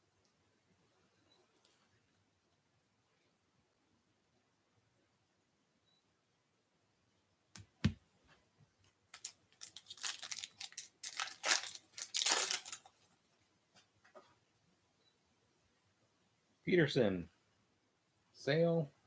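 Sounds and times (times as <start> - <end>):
wrapper crinkling and tearing: 9.1 - 13.0.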